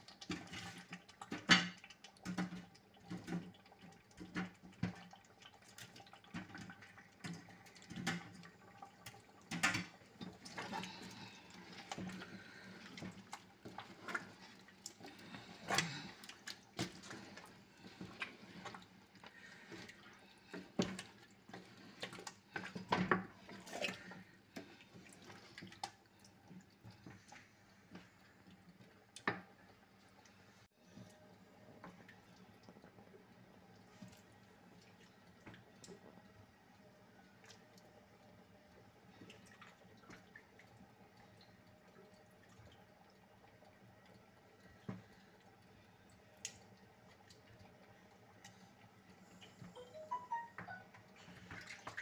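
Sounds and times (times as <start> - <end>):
wet squelching of stirred stew: 0.0 - 31.2.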